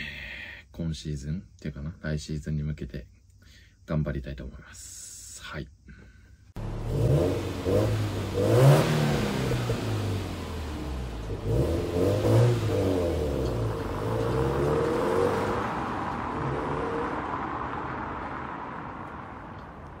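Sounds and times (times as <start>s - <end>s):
car engine revving: 6.6s - 20.0s.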